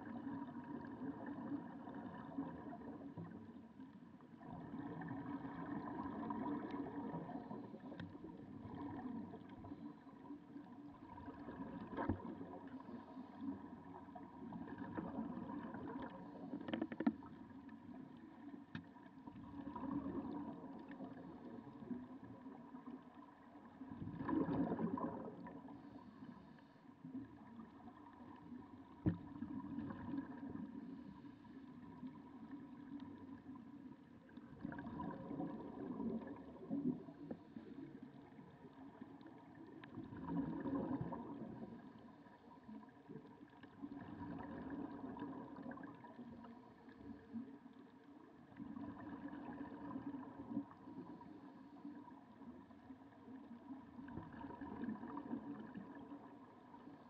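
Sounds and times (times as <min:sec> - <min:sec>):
exhaled bubbles: 0:00.0 - 0:03.6, 0:04.4 - 0:10.0, 0:10.6 - 0:17.3, 0:19.4 - 0:22.8, 0:23.7 - 0:26.4, 0:27.1 - 0:31.1, 0:34.4 - 0:47.3, 0:53.5 - 0:56.8
faint steady hum: 0:00.0 - 0:57.0.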